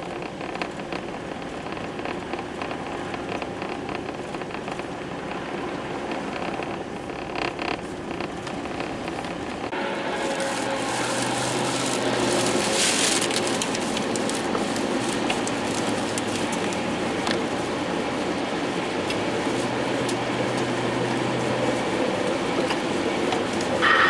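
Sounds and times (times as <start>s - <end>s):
light ticks against car: 0.0s - 5.0s
road and tyre noise inside car: 0.0s - 24.0s.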